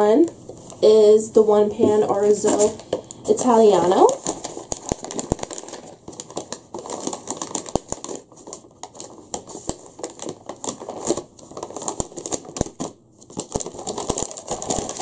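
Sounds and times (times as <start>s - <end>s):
paper bag crinkling: 1.8s - 15.0s.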